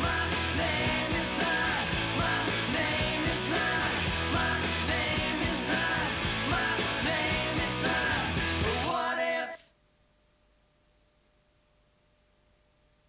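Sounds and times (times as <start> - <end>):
rock band with singing: 0.0 - 9.6
faint steady hum: 9.6 - 13.0.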